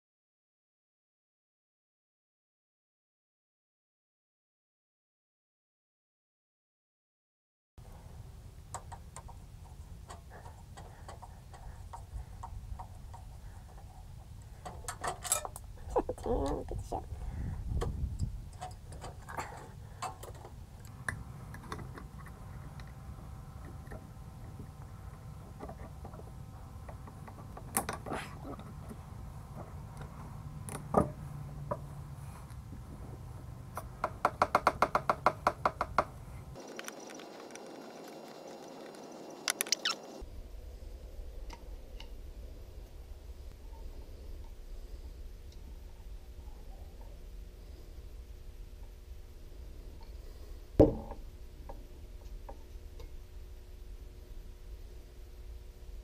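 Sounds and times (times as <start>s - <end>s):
steady low rumble: 7.8s - 34.0s, 40.2s - 56.0s
steady low hum: 7.8s - 56.0s
metal parts clicking and knocking: 14.6s - 16.6s.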